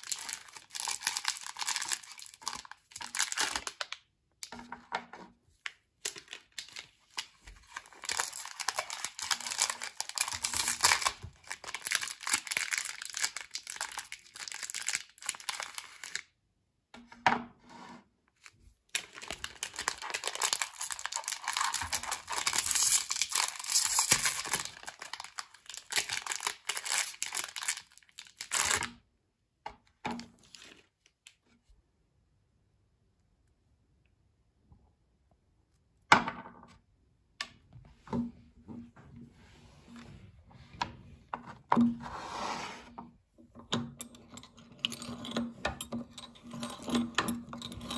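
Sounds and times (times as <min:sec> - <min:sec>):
plastic wrappers crinkling and tearing: 0:00.0 - 0:04.0, 0:06.0 - 0:16.2, 0:18.9 - 0:28.9.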